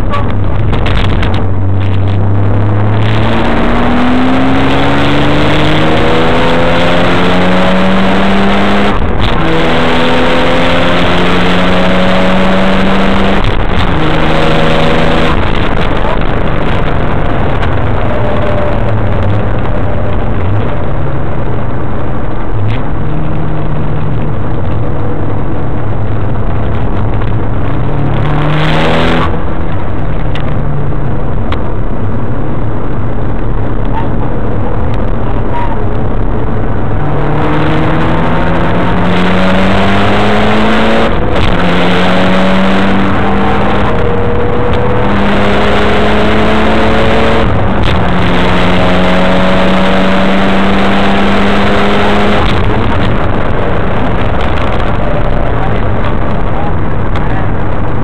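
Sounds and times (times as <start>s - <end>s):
car engine accelerating hard: 0.0s - 58.0s
wind and road noise: 0.0s - 58.0s.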